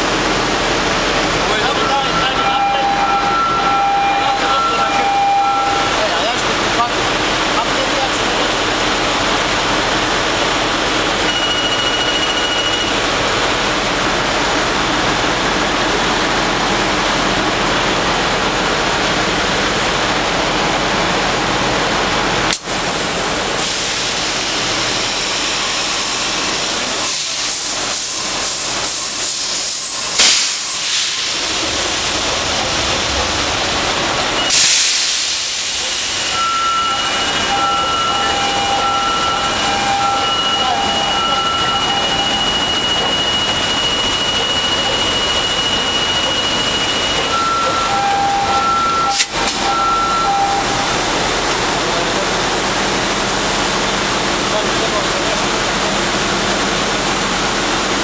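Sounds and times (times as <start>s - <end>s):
engine room machinery noise: 0.0s - 58.0s
beeping tones: 1.5s - 6.9s, 11.2s - 13.0s, 36.3s - 51.2s
compressed air hissing blasts: 27.1s - 31.4s, 34.5s - 36.2s.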